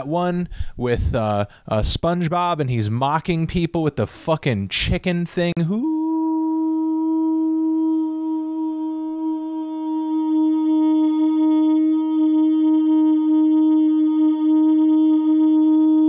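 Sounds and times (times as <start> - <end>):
man holding long hooo note: 5.6 - 16.0.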